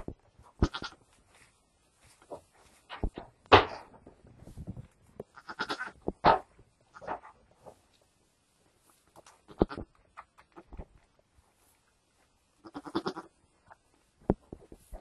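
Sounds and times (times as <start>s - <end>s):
rustles and knocks in straw: 0.0s - 5.4s, 13.4s - 15.0s
goat low calls: 0.6s - 1.0s, 5.3s - 6.0s, 12.6s - 13.3s.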